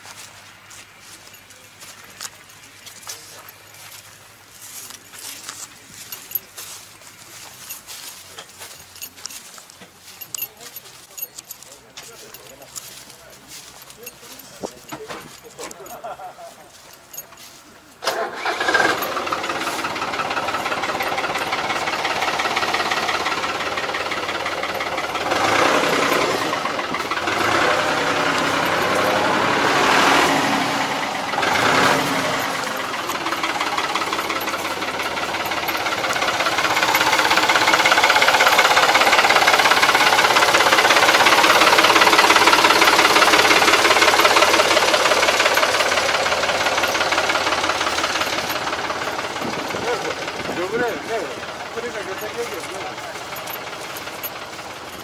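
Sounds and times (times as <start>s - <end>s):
diesel tractor engine running: 0.0s - 55.0s.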